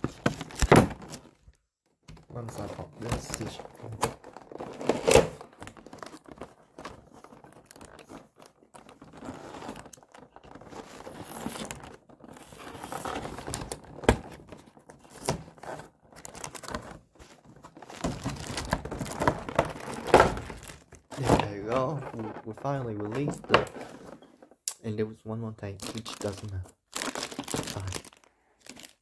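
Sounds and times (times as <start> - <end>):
plastic packaging crinkling: 2.6 - 14.0, 17.7 - 24.2, 25.7 - 29.0.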